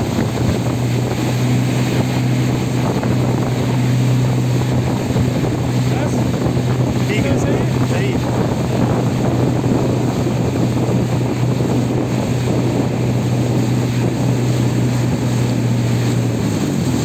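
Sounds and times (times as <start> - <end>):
motorboat engine running: 0.0 - 17.0
water rushing past hull: 0.0 - 17.0
wind on microphone: 0.0 - 17.0.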